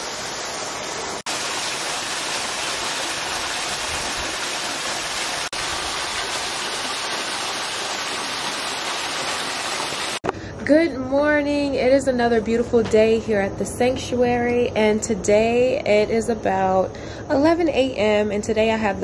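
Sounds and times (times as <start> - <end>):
waterfall rushing into a pool: 0.0 - 10.2.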